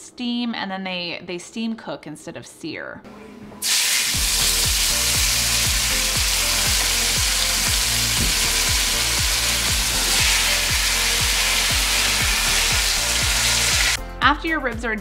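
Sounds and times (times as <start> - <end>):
meat sizzling in a pot: 3.6 - 14.0.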